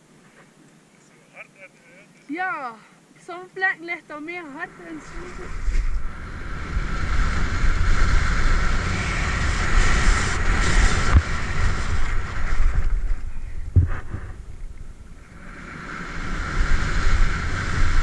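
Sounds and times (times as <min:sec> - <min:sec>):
wind buffeting microphone: 0:04.7 - 0:18.0
skis carving through snow: 0:04.8 - 0:14.4
short thumps: 0:13.7 - 0:14.7.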